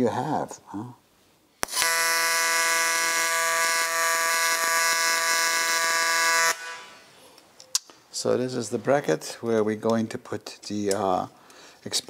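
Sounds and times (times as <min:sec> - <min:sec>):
welding arc strike click: 0:01.6 - 0:02.0
welding arc buzzing: 0:01.6 - 0:07.1.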